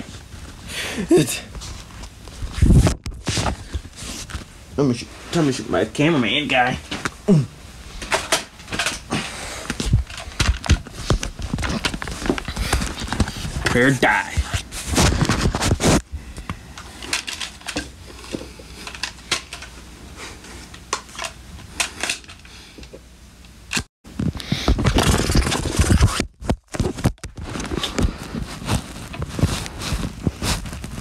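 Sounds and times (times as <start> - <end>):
rustling of handled objects: 0.0 - 7.2, 7.8 - 23.0, 24.2 - 31.0
clicks of things being handled: 8.0 - 9.1.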